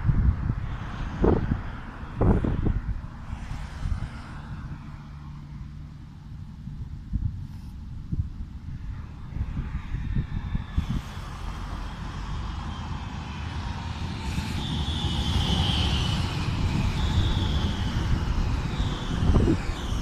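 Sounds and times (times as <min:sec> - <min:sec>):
tram wheels rumbling on rail: 0:00.0 - 0:07.4, 0:08.2 - 0:20.0
high squeal: 0:09.3 - 0:20.0
tram whine falling in pitch: 0:10.7 - 0:20.0.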